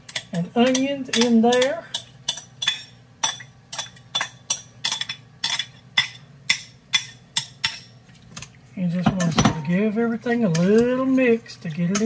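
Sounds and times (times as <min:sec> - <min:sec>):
metal utensil clinking on bowl: 0:00.1 - 0:08.0.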